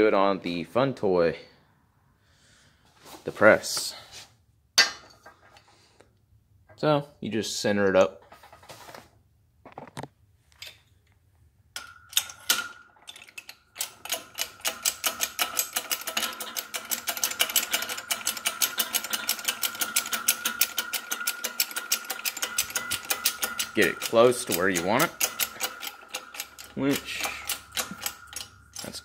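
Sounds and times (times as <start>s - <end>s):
steady high whine: 20.0s - 29.0s.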